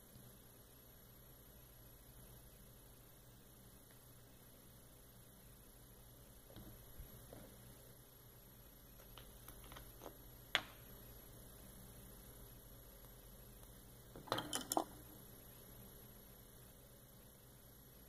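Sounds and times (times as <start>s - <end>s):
faint electrical hum: 0.0s - 18.0s
small clicks and taps: 8.9s - 10.8s.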